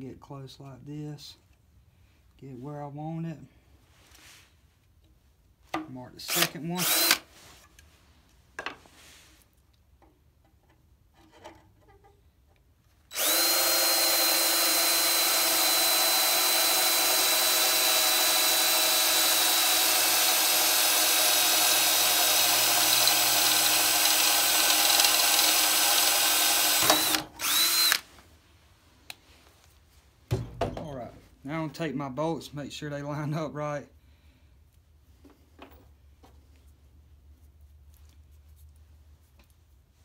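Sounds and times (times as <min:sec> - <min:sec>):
drill whining through sheet metal: 0:06.3 - 0:07.3, 0:13.1 - 0:28.0.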